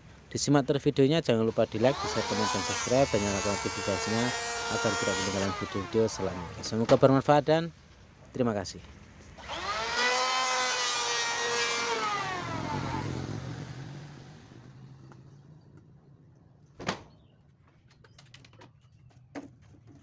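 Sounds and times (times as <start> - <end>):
power tool motor winding down: 1.5 - 6.9, 9.4 - 15.4.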